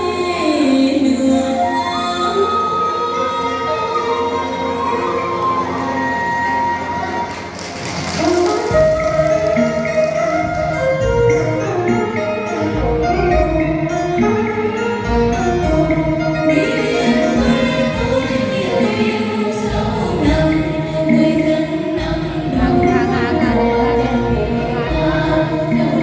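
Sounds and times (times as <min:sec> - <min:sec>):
instrumental accompaniment: 0:00.3 - 0:26.0
choir singing folk song: 0:16.5 - 0:26.0.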